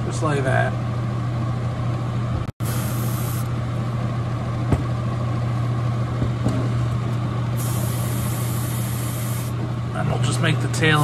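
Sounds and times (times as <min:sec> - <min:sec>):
exhaust fan humming: 0:00.0 - 0:11.0
airbrush hissing: 0:02.6 - 0:03.5, 0:07.6 - 0:09.6.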